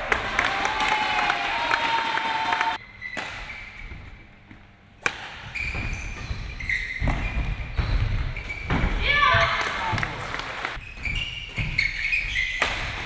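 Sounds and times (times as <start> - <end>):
rackets hitting shuttlecock: 5.0 - 5.5.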